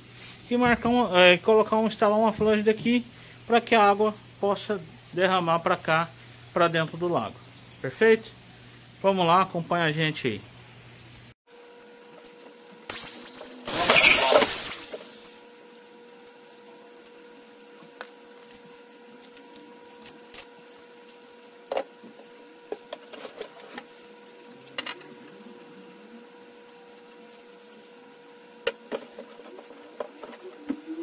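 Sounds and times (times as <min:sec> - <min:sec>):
faint hum: 0:12.7 - 0:31.0.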